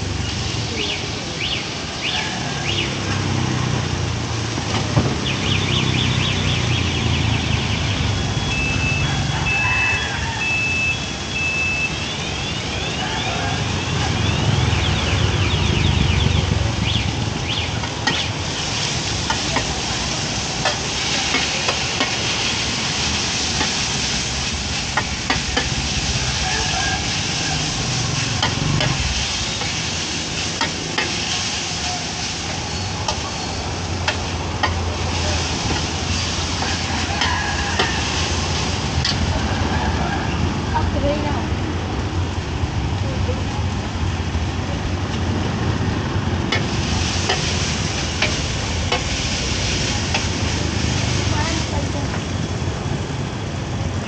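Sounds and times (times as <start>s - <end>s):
food hissing as it fries: 0.0s - 12.2s, 13.5s - 39.9s, 45.2s - 52.6s
rumble of passing traffic: 0.0s - 54.0s
high beeps: 7.2s - 16.1s.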